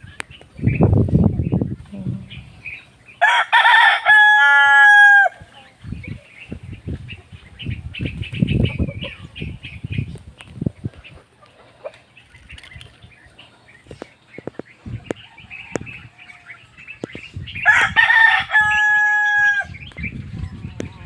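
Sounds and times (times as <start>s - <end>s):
bird chirps: 0.0s - 3.3s, 5.5s - 21.0s
rooster crowing: 3.2s - 5.4s, 17.6s - 19.8s.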